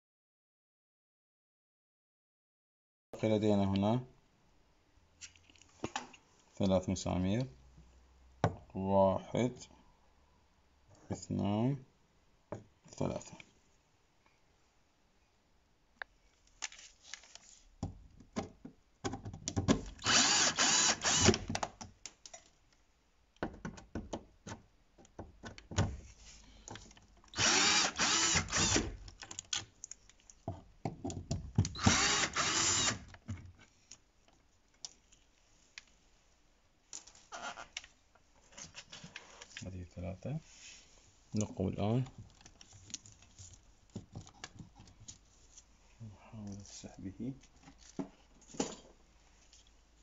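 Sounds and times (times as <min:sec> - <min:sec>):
cordless drill whirring: 0:20.0 - 0:21.5, 0:27.3 - 0:29.0, 0:31.7 - 0:33.1.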